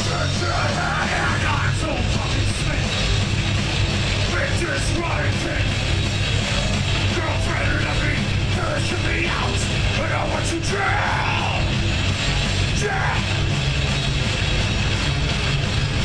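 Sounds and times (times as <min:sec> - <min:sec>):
bass guitar: 0:00.0 - 0:16.0
distorted electric guitars: 0:00.0 - 0:16.0
drums: 0:00.0 - 0:16.0
person yelling vocals: 0:08.7 - 0:11.7, 0:12.7 - 0:13.4.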